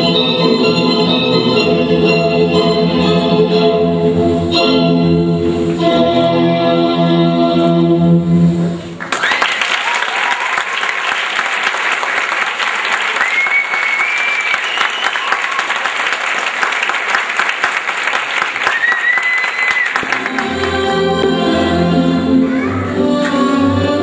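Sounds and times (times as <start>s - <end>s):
ballet music: 0.0s - 9.0s, 20.0s - 24.0s
audience applause: 9.0s - 20.9s
high whistles: 13.2s - 15.8s, 18.7s - 20.0s.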